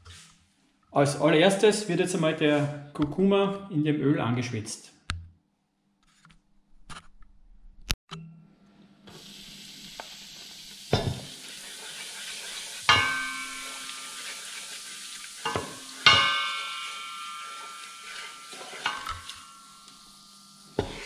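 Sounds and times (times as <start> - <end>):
spice sizzling in oil: 9.1 - 21.0
wooden spoon knocking pot: 12.9 - 14.3, 15.4 - 19.5
metal pot ringing: 12.9 - 14.6, 15.4 - 21.0.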